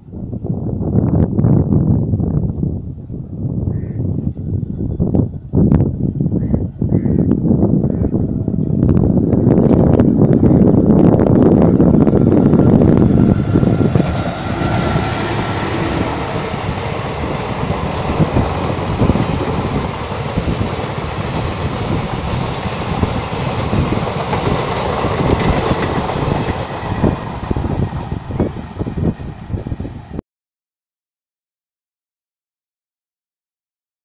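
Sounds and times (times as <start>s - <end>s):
passenger train passing: 0.0s - 30.2s.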